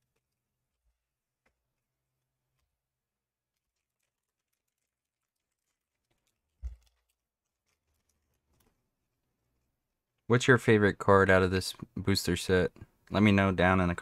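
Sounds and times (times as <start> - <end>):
hands handling cards and foil: 0.0 - 8.9.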